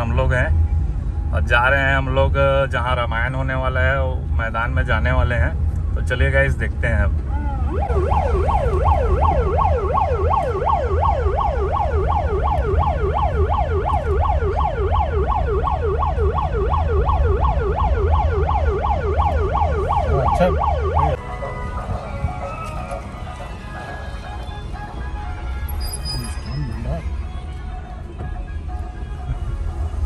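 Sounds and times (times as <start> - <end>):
electronic siren yelping: 7.6 - 27.0.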